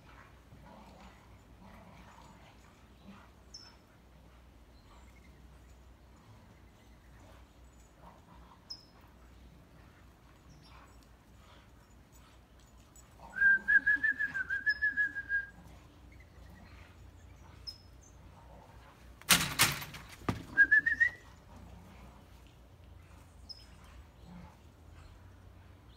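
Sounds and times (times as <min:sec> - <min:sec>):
person whistling: 0:13.4 - 0:15.5, 0:20.6 - 0:21.2.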